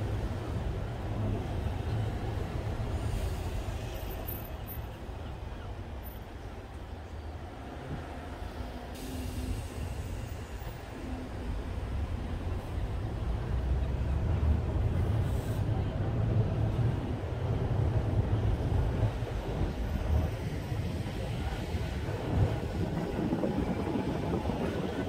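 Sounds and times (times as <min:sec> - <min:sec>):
tram running rumble: 0:00.0 - 0:25.0
wind buffeting microphone: 0:15.9 - 0:25.0.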